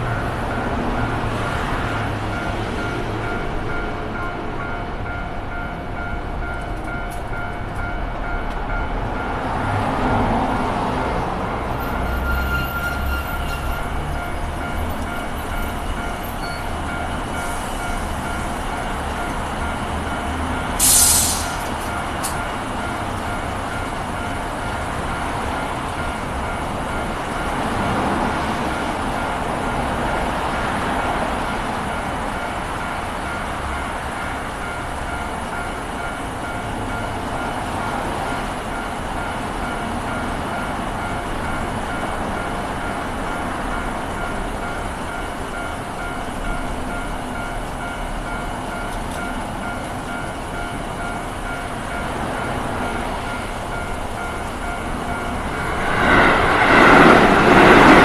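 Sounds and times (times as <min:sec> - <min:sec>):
trains passing: 0:00.0 - 0:58.0
sharp hiss: 0:20.8 - 0:21.8.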